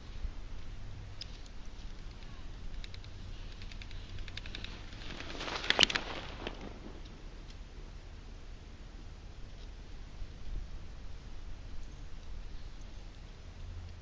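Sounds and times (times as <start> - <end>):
light clicks: 0.6 - 5.0
bicycle tyres crunching snow: 3.3 - 7.3.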